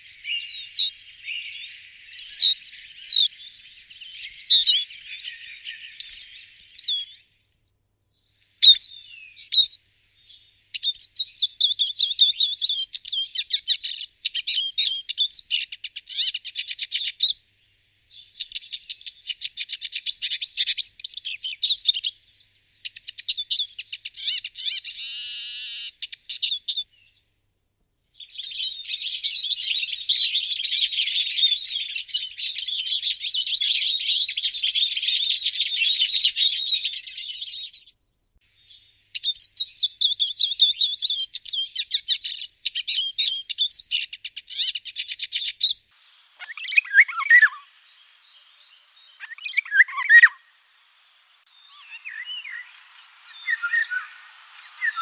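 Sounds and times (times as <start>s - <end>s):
siskin twittering song: 0.0s - 7.3s, 8.6s - 17.4s, 18.1s - 26.9s, 28.2s - 55.0s
buzzy drawn-out bird note: 46.0s - 55.0s.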